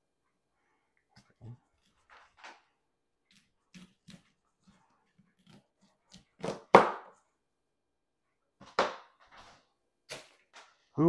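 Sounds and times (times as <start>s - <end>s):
knife chopping on plastic board: 5.4s - 7.1s.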